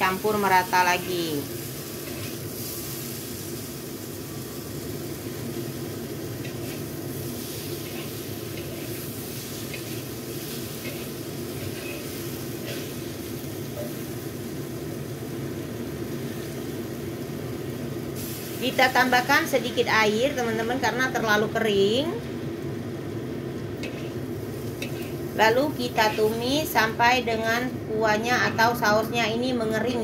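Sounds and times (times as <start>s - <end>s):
vegetables sizzling in oil: 0.0s - 30.0s
metal spatula scraping wok: 1.9s - 3.0s, 6.4s - 13.1s, 23.8s - 25.2s, 25.9s - 26.4s.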